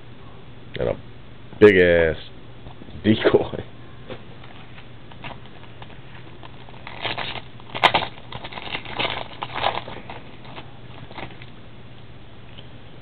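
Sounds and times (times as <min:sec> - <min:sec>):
foil wrapper tearing and crinkling: 0:05.1 - 0:11.5.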